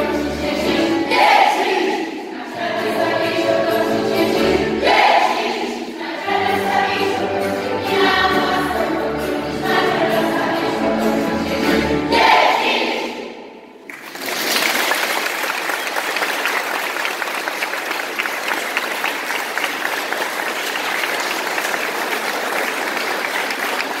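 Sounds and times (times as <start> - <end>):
audience applause: 13.9 - 24.0.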